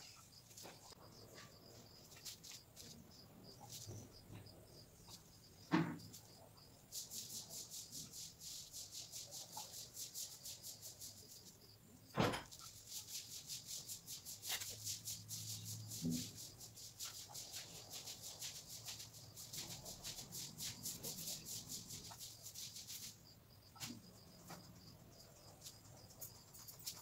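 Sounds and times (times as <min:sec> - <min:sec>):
sharp knock: 0:12.2 - 0:12.6.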